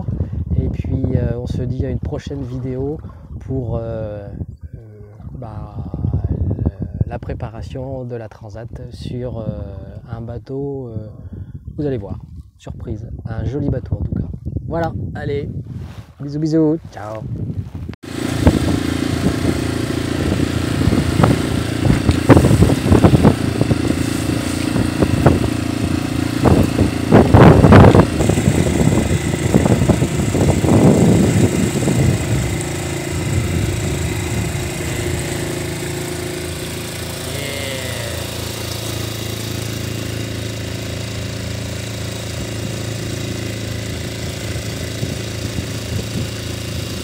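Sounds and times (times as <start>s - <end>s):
boat engine running: 0.0s - 7.0s, 18.0s - 47.0s.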